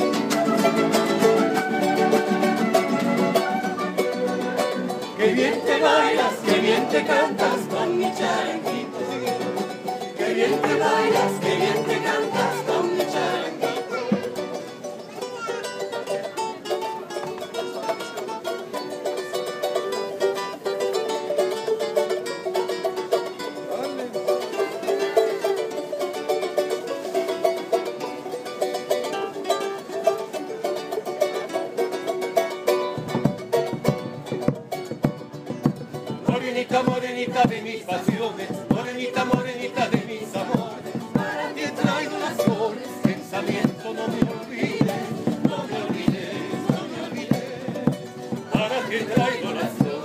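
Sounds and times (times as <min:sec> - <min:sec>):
acoustic guitar strumming: 0:00.0 - 0:17.2, 0:31.1 - 0:50.0
charango strumming: 0:00.0 - 0:50.0
low drum beats: 0:33.0 - 0:50.0.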